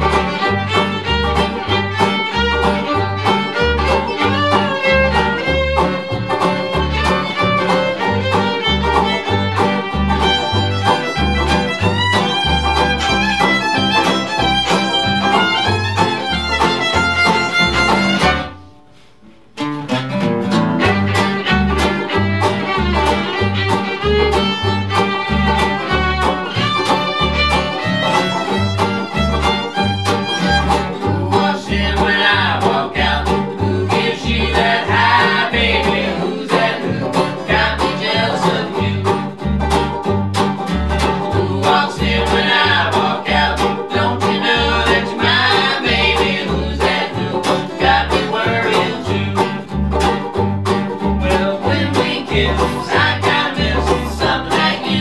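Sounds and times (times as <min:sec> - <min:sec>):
banjo: 0:00.0 - 0:18.7, 0:19.4 - 0:55.0
acoustic guitar: 0:00.0 - 0:55.0
upright bass: 0:00.0 - 0:55.0
voices singing: 0:25.6 - 0:39.4, 0:41.0 - 0:49.7, 0:51.2 - 0:55.0.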